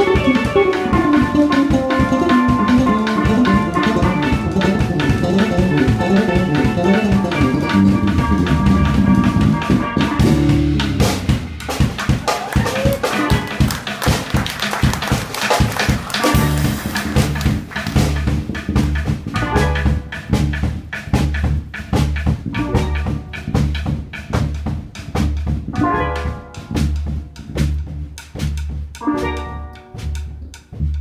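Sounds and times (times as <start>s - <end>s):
bass line: 0.0s - 15.2s, 15.8s - 31.0s
drum beat: 0.0s - 31.0s
steel pan phrases: 29.0s - 30.8s.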